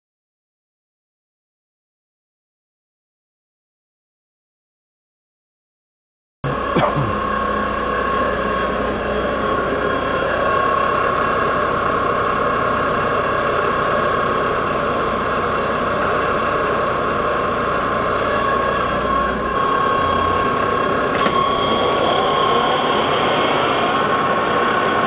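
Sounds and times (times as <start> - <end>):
high whine: 6.4 - 25.0
metal lathe droning: 6.4 - 25.0.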